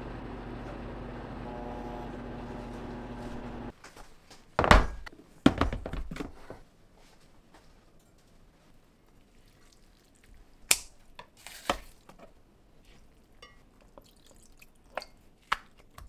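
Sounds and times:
machine hum: 0.0s - 3.7s.

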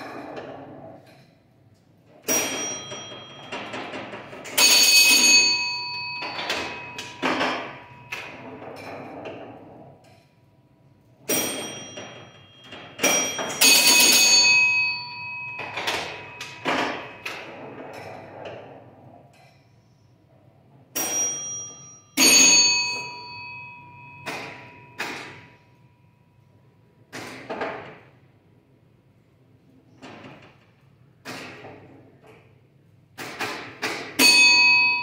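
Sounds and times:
pinball mechanical clacks: 0.0s - 19.9s, 20.6s - 25.6s, 30.0s - 35.0s
ringing score bells: 2.2s - 3.8s, 4.4s - 8.5s, 11.3s - 17.3s, 21.0s - 25.4s, 34.2s - 35.0s.

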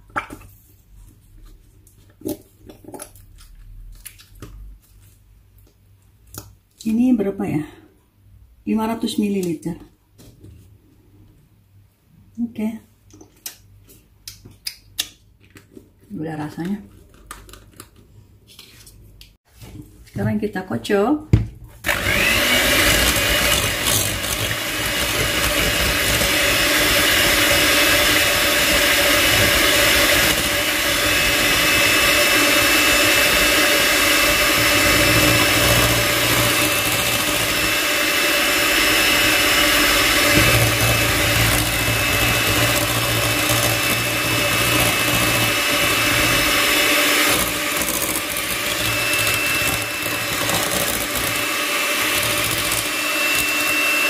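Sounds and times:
electric mixer whisking cream: 21.8s - 54.0s.

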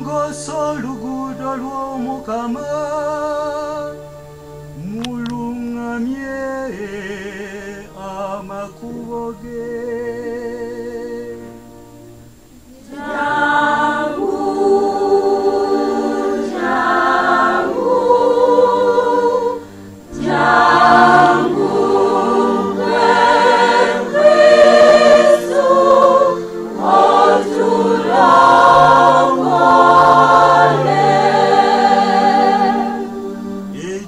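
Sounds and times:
man singing with vibrato: 0.0s - 4.1s, 4.8s - 11.6s, 12.9s - 34.0s
women's choir singing: 12.7s - 34.0s.

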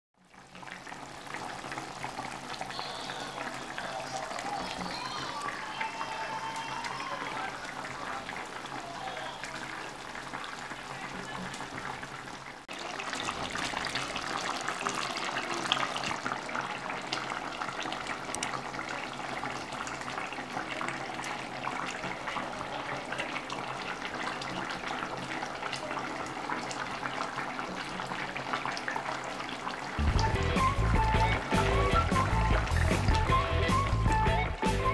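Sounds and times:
thick sauce bubbling: 0.2s - 34.0s
music: 30.0s - 34.9s.

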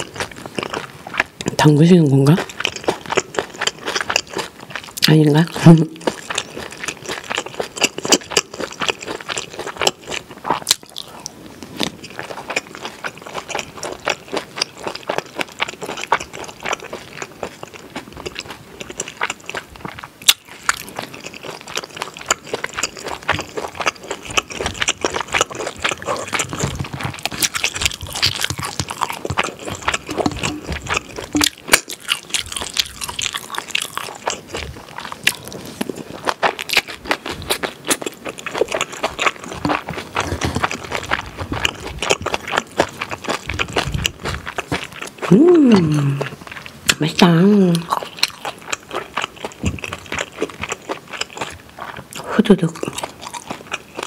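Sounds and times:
wet chewing and crunching: 0.0s - 54.0s
mouth smacks and clicks: 19.8s - 47.0s.

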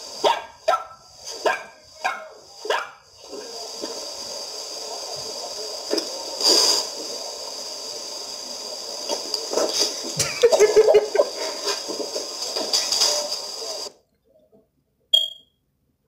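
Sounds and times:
hissing noise: 0.0s - 14.0s
dog barking: 0.2s - 3.0s.

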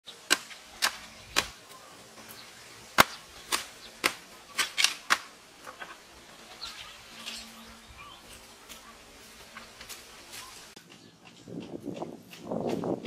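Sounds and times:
machete chopping dry bamboo: 0.2s - 1.6s, 3.0s - 5.3s.

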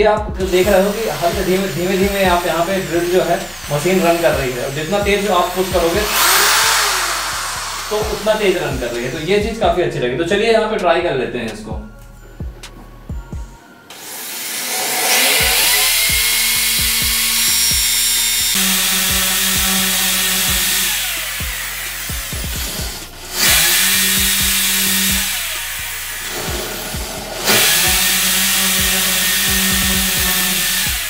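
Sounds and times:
electric drill boring into wall: 0.4s - 9.4s, 13.9s - 31.0s.

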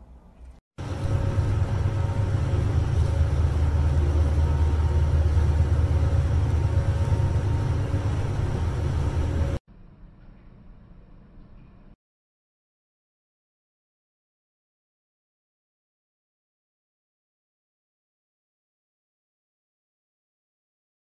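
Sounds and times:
faint humming tones: 0.0s - 12.0s
steady low rumble: 0.8s - 12.0s.

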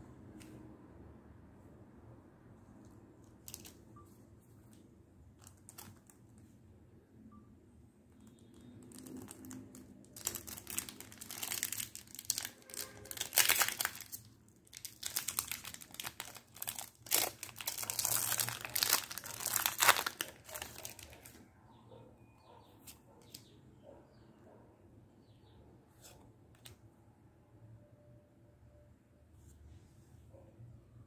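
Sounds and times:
foil wrapper crinkling and tearing: 5.4s - 6.2s, 8.8s - 21.4s.

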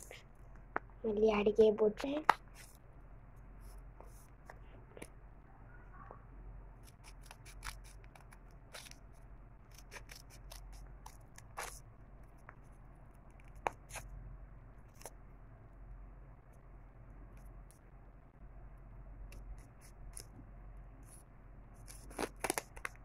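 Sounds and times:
scissors snipping paper: 6.8s - 9.0s, 9.6s - 11.8s.

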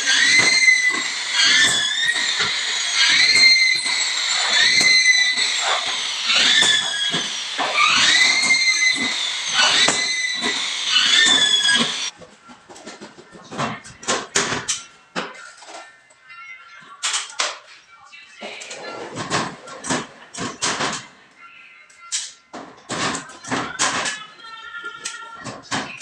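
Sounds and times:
electric drill whining: 0.0s - 12.1s
screw rasping through board: 0.0s - 12.1s
sharp clicks and knocks: 0.0s - 12.1s.

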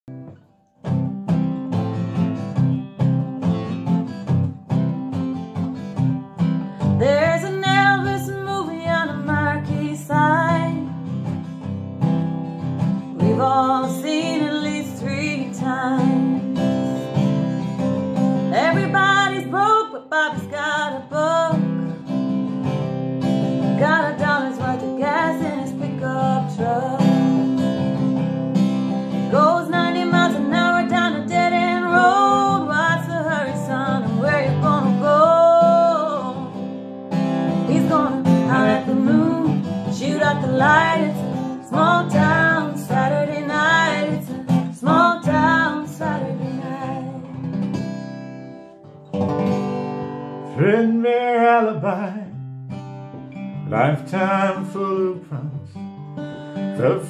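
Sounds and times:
acoustic guitar strumming: 0.1s - 57.0s
woman singing: 6.8s - 11.0s, 13.1s - 17.4s, 18.4s - 21.9s, 23.6s - 27.9s, 29.1s - 36.7s, 37.4s - 47.5s.

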